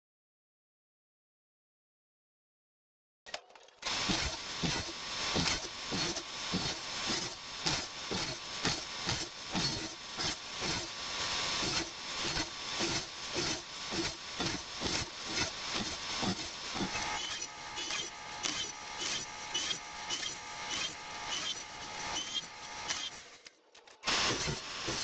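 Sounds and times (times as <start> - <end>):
table saw cutting wood: 3.8 - 25.0.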